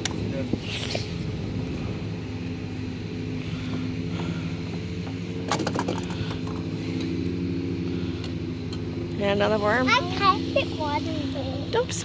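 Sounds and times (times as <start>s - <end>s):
engine droning: 0.0s - 12.0s.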